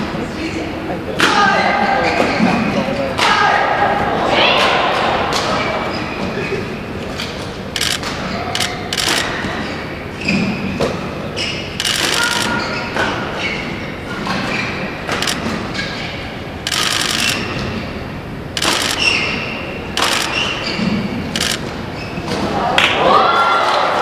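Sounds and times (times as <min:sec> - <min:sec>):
voices in a hall: 0:00.0 - 0:24.0
shoes squeaking on court: 0:01.6 - 0:03.0, 0:05.4 - 0:22.5.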